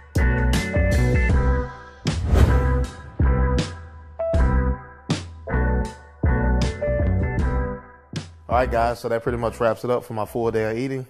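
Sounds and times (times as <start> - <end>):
instrumental music with heavy bass: 0.0 - 8.5
sharp hit: 2.2 - 3.5.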